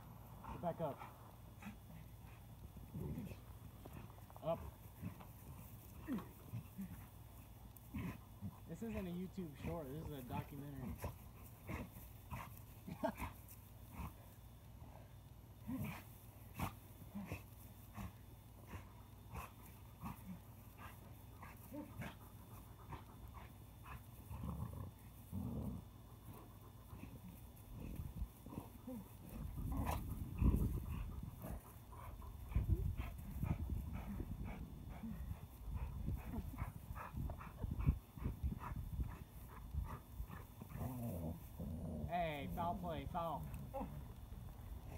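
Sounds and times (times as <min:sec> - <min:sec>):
puppy growling and grunting: 0:02.9 - 0:07.1, 0:07.9 - 0:08.6, 0:22.9 - 0:35.2, 0:35.8 - 0:42.4.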